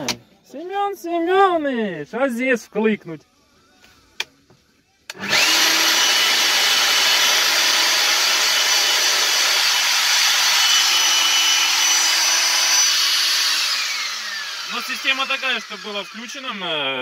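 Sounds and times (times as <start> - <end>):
core drill motor whining: 5.1 - 17.0.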